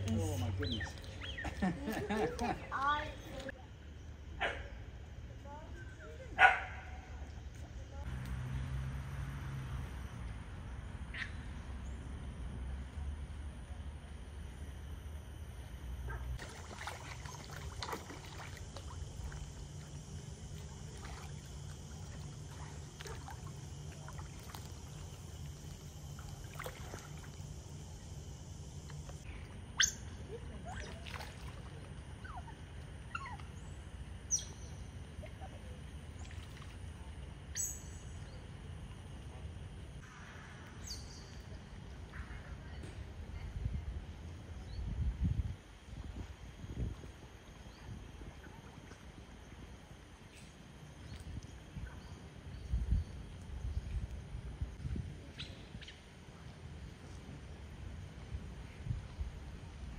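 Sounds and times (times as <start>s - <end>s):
steady low hum: 0.0s - 59.9s
faint running water: 16.4s - 28.2s.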